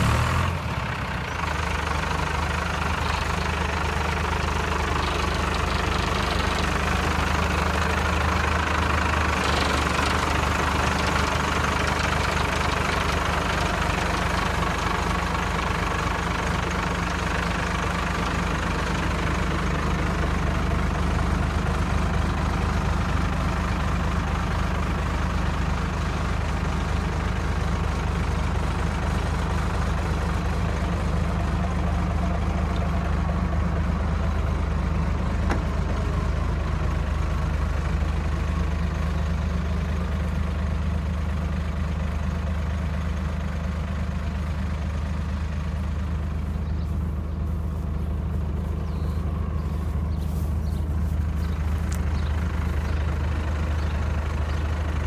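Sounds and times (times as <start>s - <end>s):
diesel engine idling: 0.0s - 55.0s.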